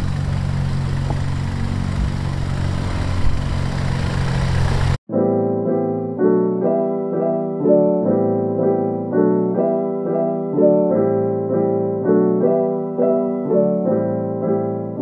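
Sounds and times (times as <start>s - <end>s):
piano chords: 5.1s - 15.0s.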